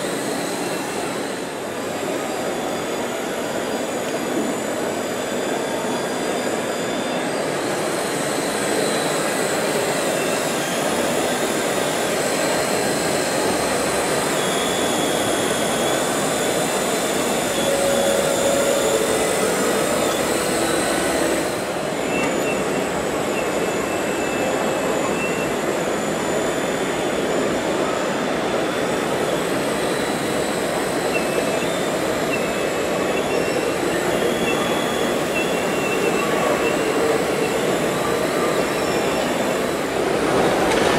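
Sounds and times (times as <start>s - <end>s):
model excavator hydraulic whine: 0.0s - 40.9s
hall noise: 13.4s - 25.0s.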